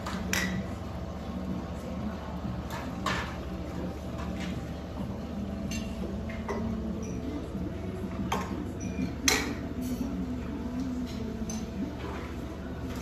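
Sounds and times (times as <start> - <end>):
restaurant low hum: 0.0 - 13.0.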